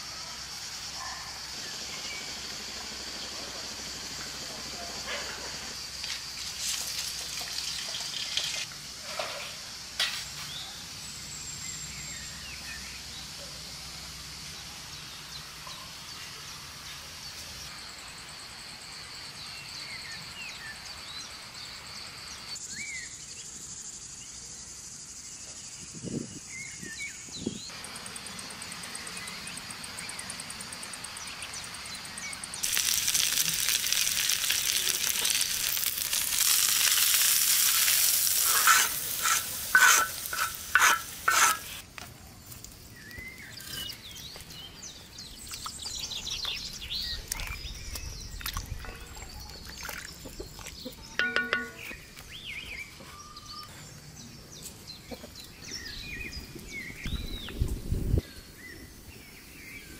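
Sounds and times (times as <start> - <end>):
insect buzz: 0.0 - 41.9
food sizzling in a pan: 6.2 - 10.5, 32.6 - 41.8.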